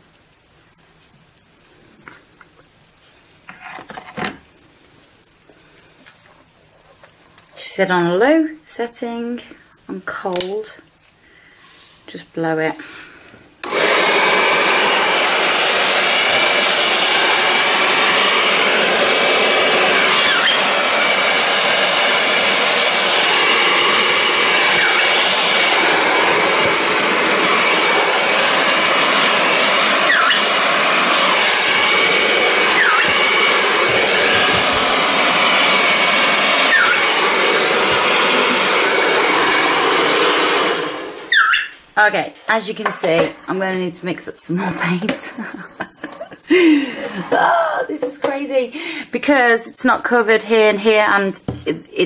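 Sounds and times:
hairdryer running: 0:13.6 - 0:41.8.

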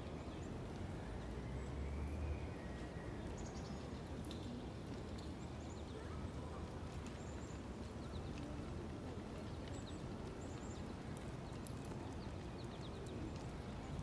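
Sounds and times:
small birds chirping: 0:09.4 - 0:14.0.

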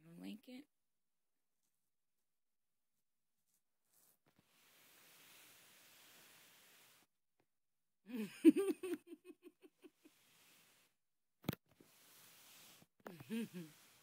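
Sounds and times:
person laughing: 0:08.1 - 0:10.1, 0:13.1 - 0:13.8.

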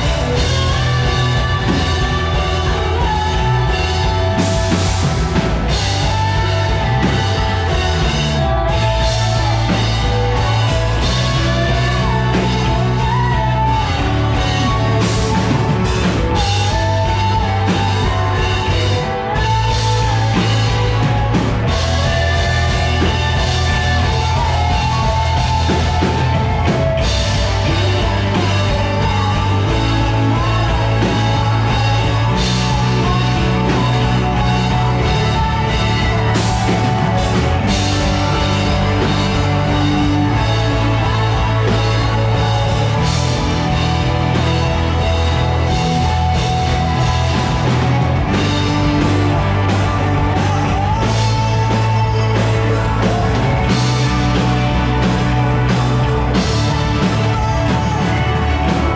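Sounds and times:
bass guitar: 0:00.0 - 0:58.9
drum kit: 0:00.0 - 0:58.9
electric guitar: 0:00.0 - 0:58.9.

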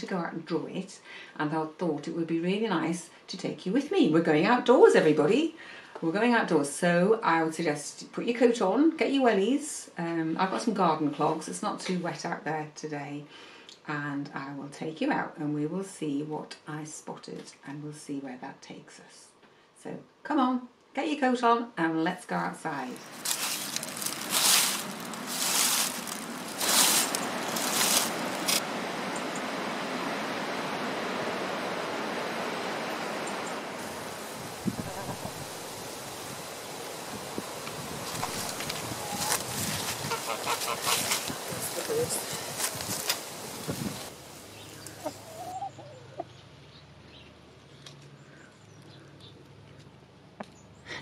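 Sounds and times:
footsteps through grass and leaves: 0:22.9 - 0:28.8, 0:33.8 - 0:45.5
hens clucking softly: 0:38.2 - 0:42.3, 0:43.5 - 0:46.4
hen wavering call: 0:44.6 - 0:46.2.

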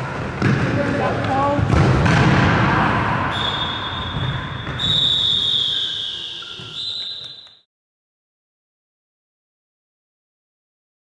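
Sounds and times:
echoing sports hall noise: 0:00.0 - 0:07.7.

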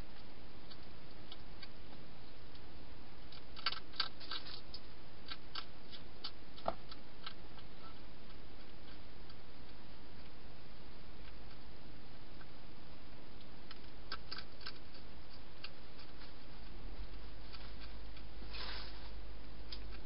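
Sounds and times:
hedgehog crunching food: 0:00.1 - 0:10.4, 0:13.3 - 0:19.0
steady hiss: 0:15.0 - 0:20.0.

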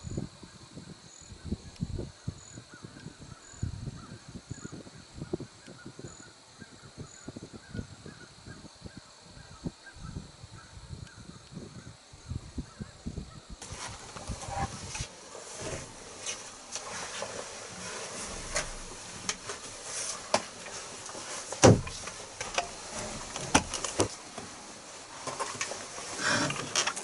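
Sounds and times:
loud thump: 0:21.6 - 0:22.0.

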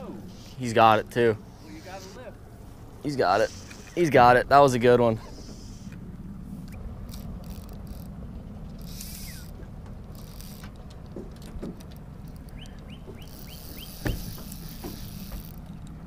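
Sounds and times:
outboard motor idling: 0:00.0 - 0:16.0
fishing rod and reel clicks: 0:03.4 - 0:04.2, 0:06.6 - 0:16.0
thump: 0:14.0 - 0:15.0.

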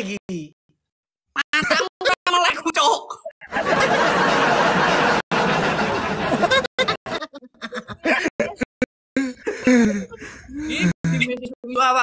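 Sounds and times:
people laughing: 0:01.4 - 0:02.5, 0:03.4 - 0:11.0.

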